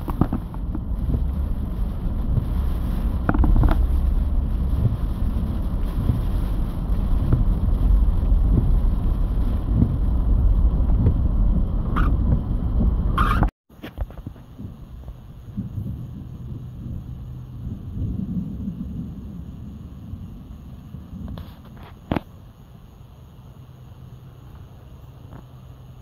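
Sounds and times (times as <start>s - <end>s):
road and wind noise inside car: 0.0s - 26.0s.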